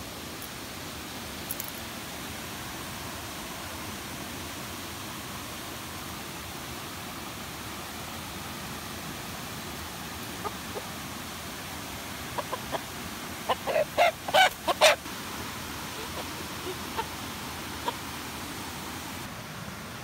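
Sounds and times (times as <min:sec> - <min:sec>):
running river water: 0:00.0 - 0:20.0
rooster clucking: 0:10.4 - 0:10.9, 0:12.3 - 0:15.1, 0:15.9 - 0:18.1.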